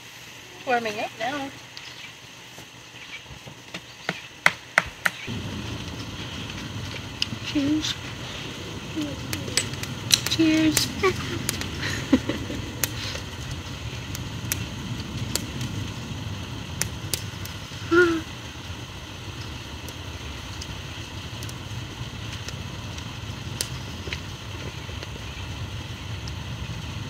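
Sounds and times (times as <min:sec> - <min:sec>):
highway traffic rumble: 0:03.7 - 0:27.0.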